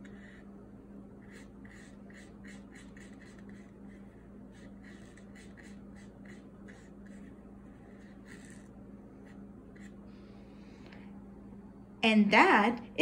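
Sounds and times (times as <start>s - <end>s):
faint low hum: 0.0s - 13.0s
brush scrubbing on paper: 1.2s - 8.6s.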